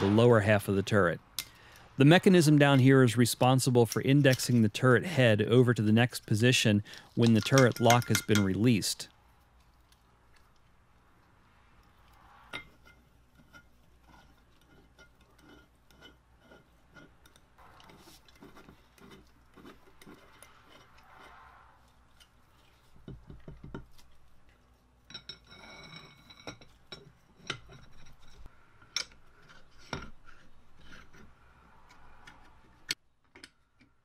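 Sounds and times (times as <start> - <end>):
clinks of small steel parts: 6.9 - 8.8.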